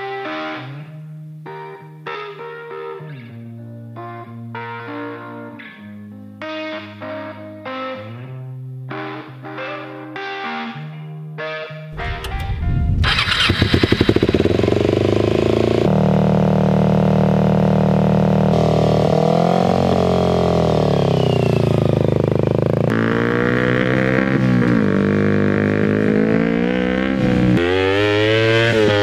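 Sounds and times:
motorcycle engine revving: 11.9 - 29.0.

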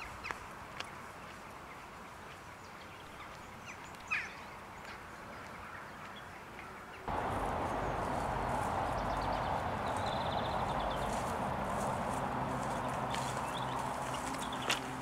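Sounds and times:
bird chirp: 2.5 - 15.0
even rushing noise: 7.1 - 14.3.

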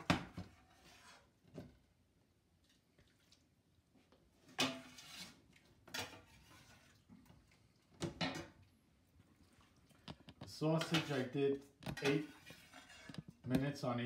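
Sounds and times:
metal spoon scraping a pot: 0.6 - 1.4, 4.5 - 7.1, 10.6 - 13.5.

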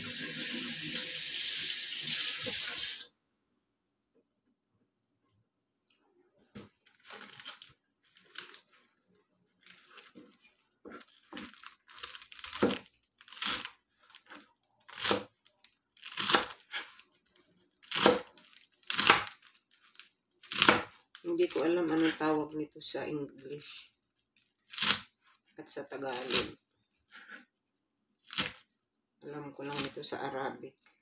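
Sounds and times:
knife cutting lettuce on board: 9.7 - 15.4, 16.0 - 17.1, 17.8 - 22.2.

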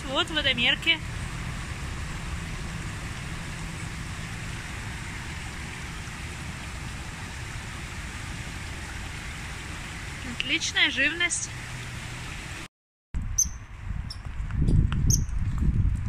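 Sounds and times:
low rumble: 0.0 - 10.3
stream water over rocks: 0.1 - 12.7.

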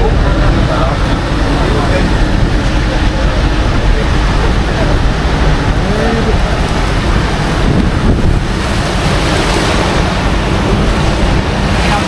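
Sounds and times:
waterfall rushing: 0.0 - 12.0
wind buffeting microphone: 0.0 - 12.0.

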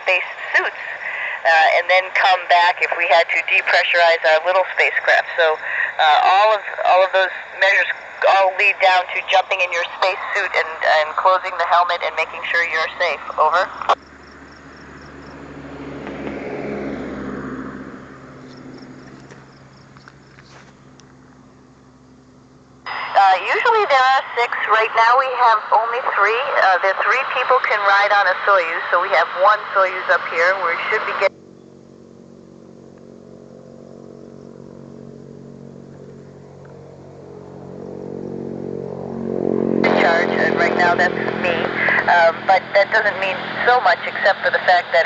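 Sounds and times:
radio receiver hum and hiss: 0.0 - 14.0, 22.8 - 31.3, 39.8 - 45.0.

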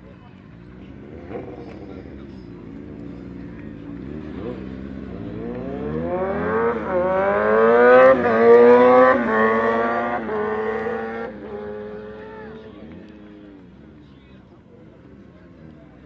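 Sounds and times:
motorcycle engine accelerating: 0.2 - 16.0.

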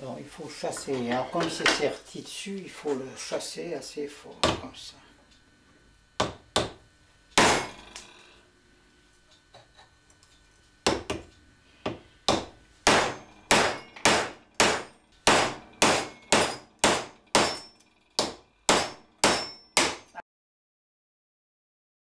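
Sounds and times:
hammer striking steel rod: 7.4 - 8.1, 12.3 - 20.2.

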